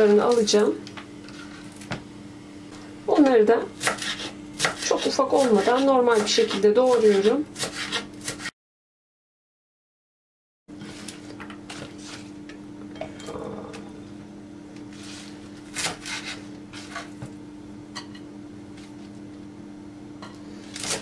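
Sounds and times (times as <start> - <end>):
knife chopping on wooden board: 3.8 - 8.5.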